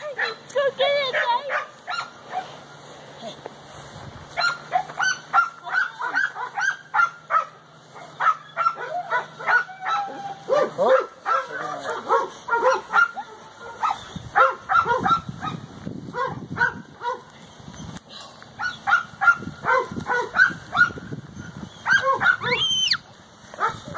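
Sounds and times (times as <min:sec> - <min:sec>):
dog yipping: 0:01.1 - 0:02.6, 0:04.4 - 0:15.6, 0:16.2 - 0:17.9, 0:18.6 - 0:23.0.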